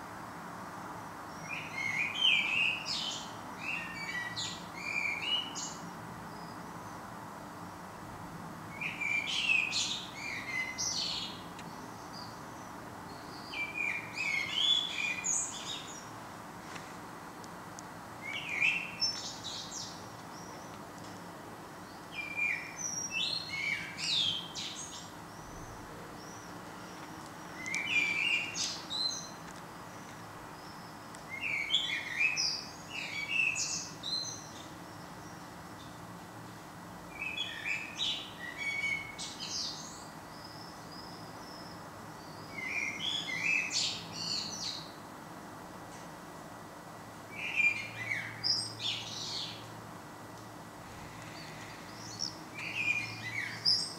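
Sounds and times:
steady background hiss: 0.0 - 53.9
songbird chirping and warbling: 1.3 - 7.0, 8.7 - 16.2, 18.2 - 20.8, 21.8 - 36.0, 37.1 - 45.0, 47.3 - 49.7, 51.0 - 53.9.

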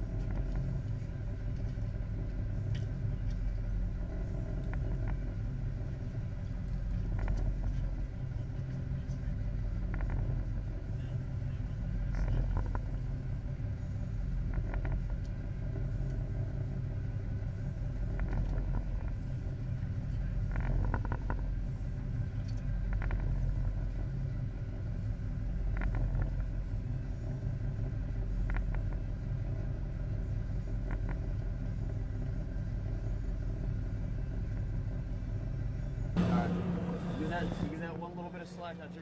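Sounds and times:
boat engine rumbling: 0.0 - 39.0.

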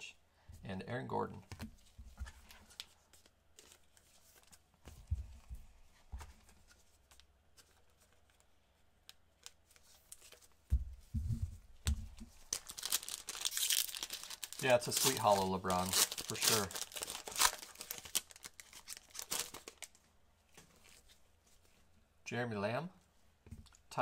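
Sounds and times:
cards clicking and rustling: 11.9 - 20.0
foil wrapper tearing and crinkling: 12.4 - 20.0.

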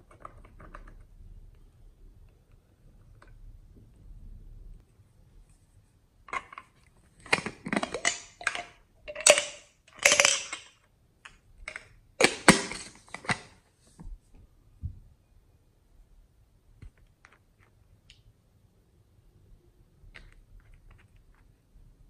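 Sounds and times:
plastic containers rattling: 6.3 - 10.8
plastic containers clicking: 6.3 - 13.5.

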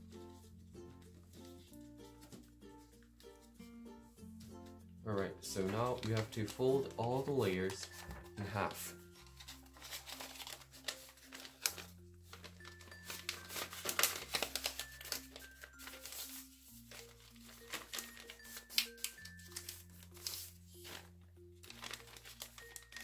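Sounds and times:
soft background music: 0.0 - 23.0
paper crinkling and rustling: 5.4 - 23.0.

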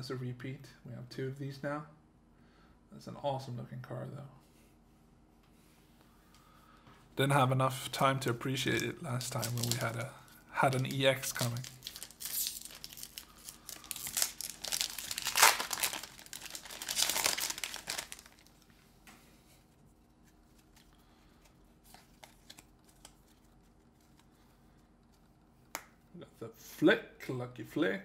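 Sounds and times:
foil wrapper tearing and crinkling: 8.6 - 10.0, 10.7 - 18.6.

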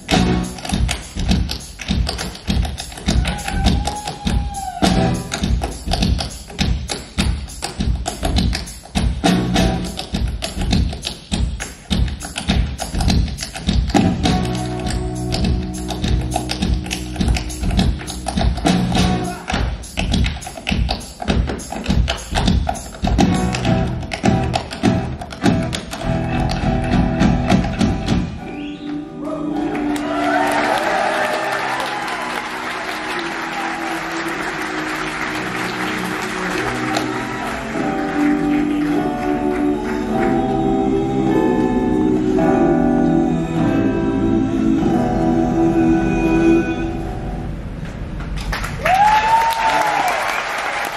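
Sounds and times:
percussive beat: 0.0 - 28.4
live band music: 0.0 - 30.2, 32.0 - 47.5
guitar: 23.1 - 29.4
audience applause: 29.2 - 40.2, 48.5 - 50.9.

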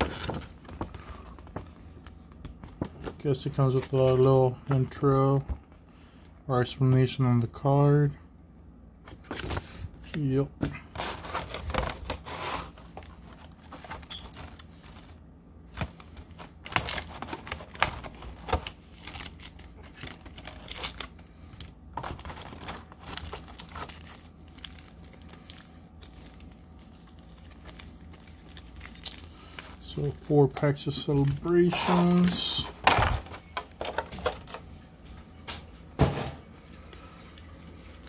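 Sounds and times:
plastic packaging crinkling: 11.0 - 34.8, 36.8 - 38.0.

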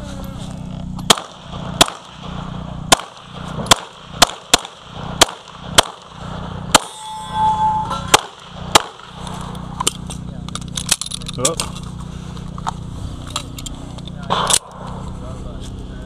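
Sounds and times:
pistol shots: 1.0 - 7.0, 8.0 - 9.6, 14.3 - 15.0
clear ringing tone: 6.8 - 8.1.

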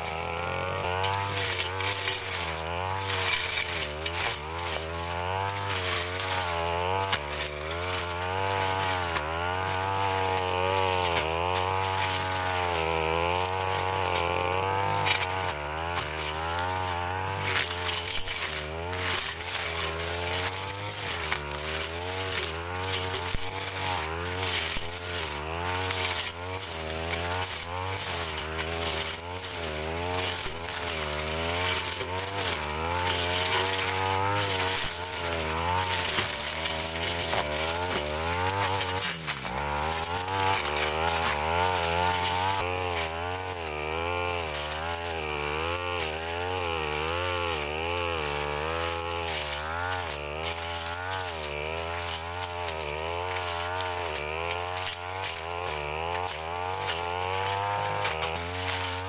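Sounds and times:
brush cutter engine running: 0.0 - 59.0.

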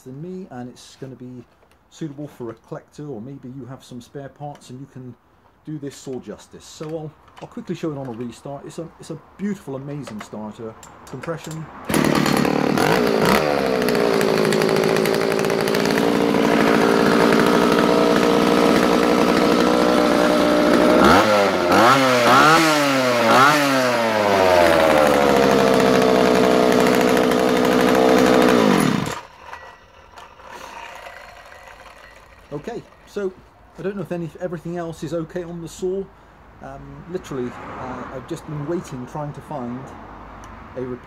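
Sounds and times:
chainsaw engine idling and revving: 11.1 - 34.4.

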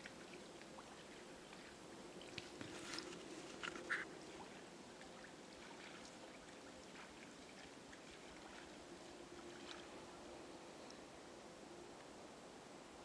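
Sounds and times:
faint splashes and drips: 0.0 - 10.2.

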